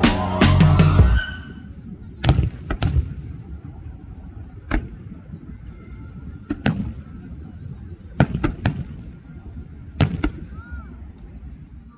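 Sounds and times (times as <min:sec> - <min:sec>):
fireworks bangs: 0:00.0 - 0:03.7, 0:06.3 - 0:09.2, 0:09.9 - 0:10.6
low continuous rumble: 0:00.0 - 0:11.9.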